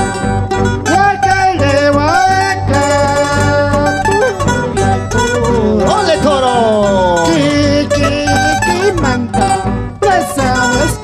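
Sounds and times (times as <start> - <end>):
acoustic guitar: 0.0 - 11.0
electric guitar: 0.0 - 11.0
mandolin: 0.0 - 11.0
steady bass: 0.0 - 11.0.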